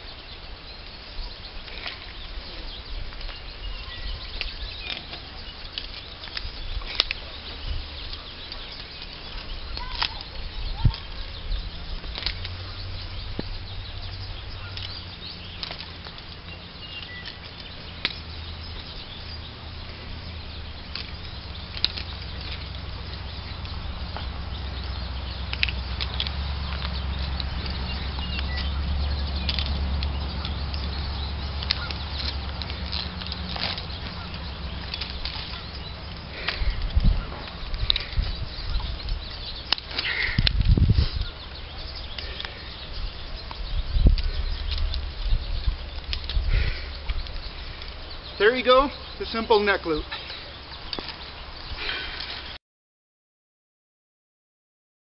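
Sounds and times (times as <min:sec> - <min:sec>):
wind buffeting microphone: 0:00.0 - 0:52.6
sharp clicks: 0:23.6 - 0:41.3.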